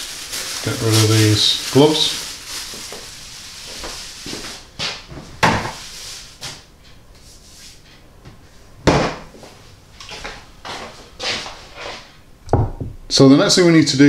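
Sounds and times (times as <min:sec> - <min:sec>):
kitchen cupboards opening and shutting: 0:05.2 - 0:05.8.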